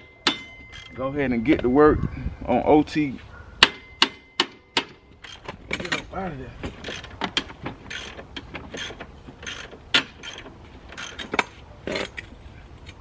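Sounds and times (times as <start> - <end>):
sharp metal clicks: 0.0 - 1.0, 3.6 - 13.0
ratchet wrench ratcheting: 0.3 - 1.0, 4.8 - 6.1, 6.7 - 12.3.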